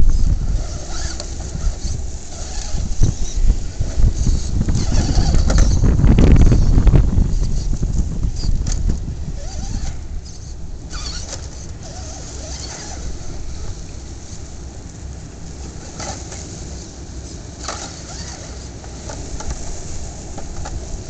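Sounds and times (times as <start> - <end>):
wind rumbling on microphone: 0.0 - 21.0
toy car electric motor whirring: 0.1 - 6.7, 7.3 - 7.8, 9.4 - 13.3, 17.6 - 19.6.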